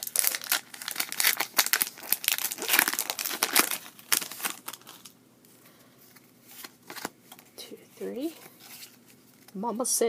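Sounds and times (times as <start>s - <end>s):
foil wrapper crinkling and tearing: 0.0s - 5.2s.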